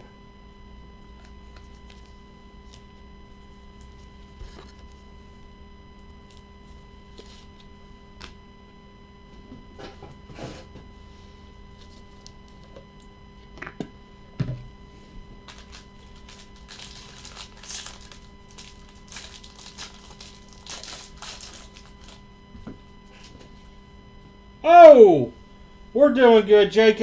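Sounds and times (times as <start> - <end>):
faint electrical hum: 0.0 - 27.0
foil wrapper crinkling and tearing: 15.4 - 22.2.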